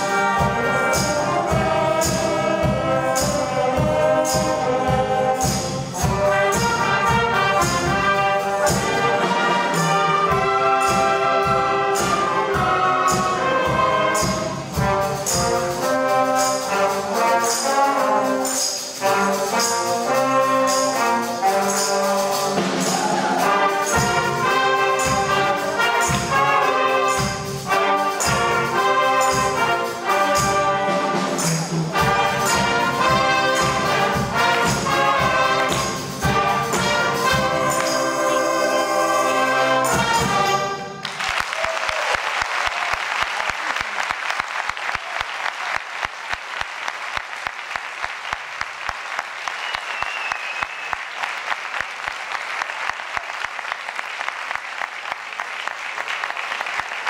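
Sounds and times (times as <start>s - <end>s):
brass ensemble playing: 0.0s - 41.3s
audience applauding: 22.6s - 23.9s, 40.9s - 57.0s.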